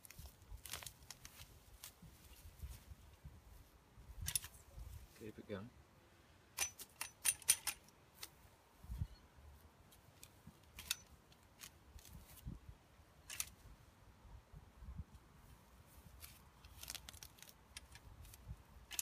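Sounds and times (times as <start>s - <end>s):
weed extractor clicking and snapping: 16.7s - 19.0s.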